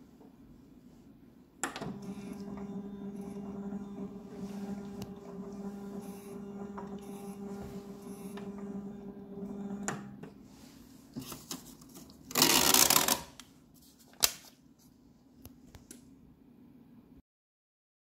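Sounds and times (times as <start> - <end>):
pump humming: 1.8 - 10.4.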